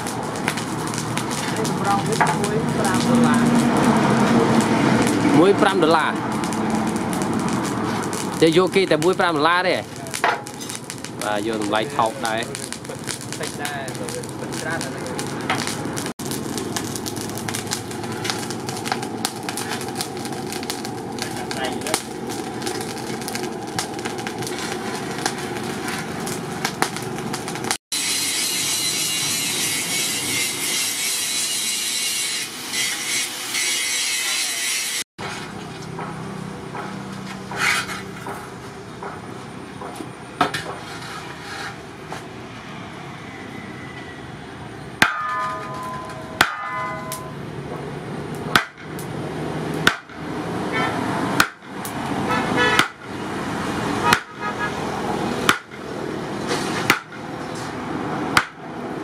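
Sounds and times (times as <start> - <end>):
hammer striking metal disc: 45.0 - 47.4.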